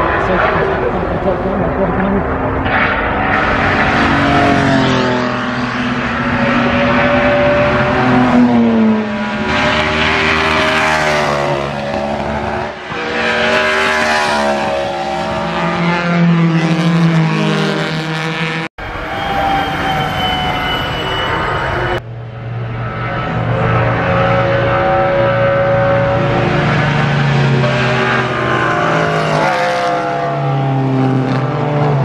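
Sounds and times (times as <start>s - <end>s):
racing car engine at high revs: 0.0s - 18.7s, 22.4s - 32.0s.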